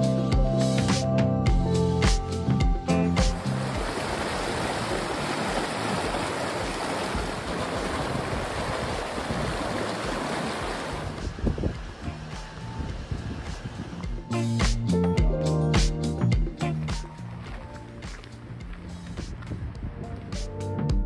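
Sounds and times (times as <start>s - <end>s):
stream rushing over rocks: 3.2s - 14.1s.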